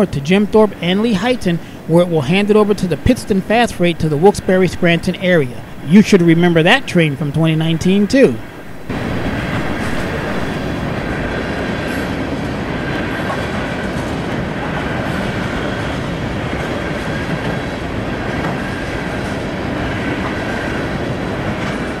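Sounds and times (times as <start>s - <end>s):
freight train rumbling past: 0.0s - 22.0s
wheels clacking over rails: 7.8s - 22.0s.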